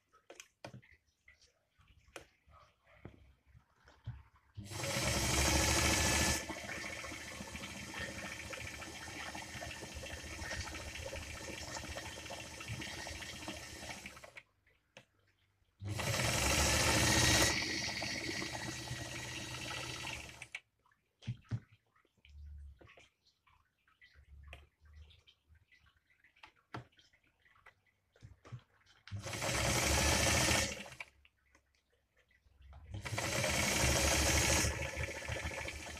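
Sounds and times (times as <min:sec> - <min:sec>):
sewing machine stitching: 0:04.6 - 0:11.8, 0:15.8 - 0:20.6, 0:29.1 - 0:31.1, 0:32.9 - 0:35.9.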